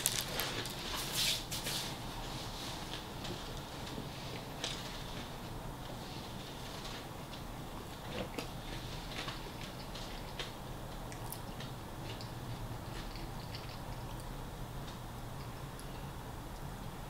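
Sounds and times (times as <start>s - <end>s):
person chewing food: 0.0s - 0.9s, 8.1s - 16.6s
steady low hum: 0.0s - 17.0s.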